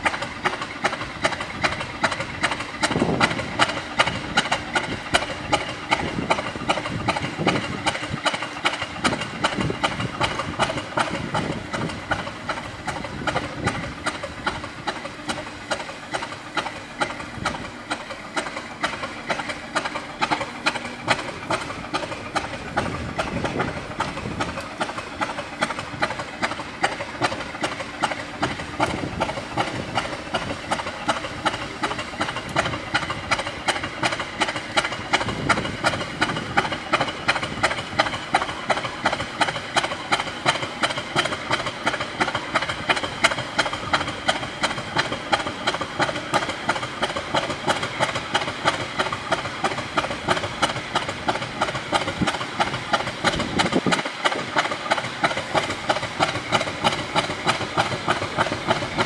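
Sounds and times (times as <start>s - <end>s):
diesel locomotive engine idling: 0.0s - 59.0s.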